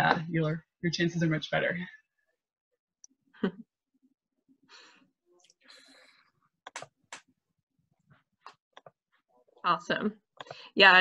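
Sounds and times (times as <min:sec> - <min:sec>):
faint breaths and sighs: 0:04.6 - 0:06.4.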